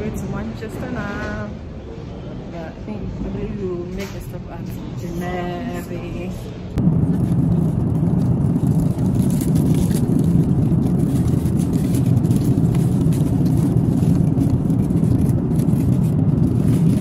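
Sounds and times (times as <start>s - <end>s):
airliner cabin roar: 0.0s - 17.0s
wrapping crinkling: 6.9s - 17.0s.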